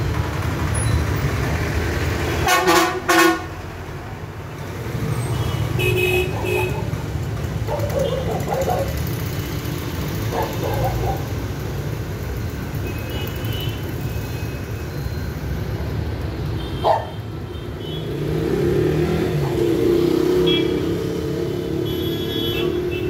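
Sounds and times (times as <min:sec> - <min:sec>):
road traffic rumble: 0:00.0 - 0:23.0
motorcycle passing close: 0:06.3 - 0:11.6, 0:18.0 - 0:22.0.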